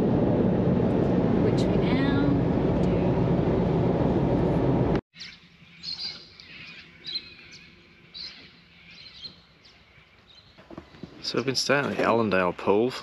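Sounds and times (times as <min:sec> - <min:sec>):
road and engine noise in cab: 0:00.0 - 0:05.0.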